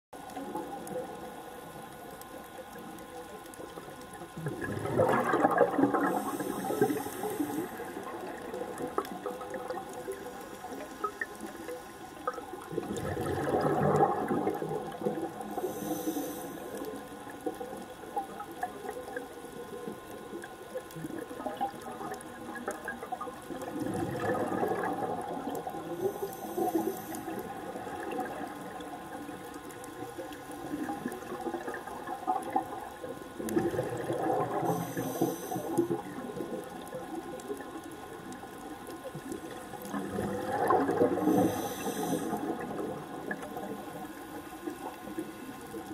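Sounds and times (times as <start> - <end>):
exhaled bubbles underwater: 0.2 - 45.9
regulator inhalation hiss: 6.1 - 8.0, 15.5 - 16.9, 26.0 - 27.5, 34.7 - 35.9, 41.3 - 42.4.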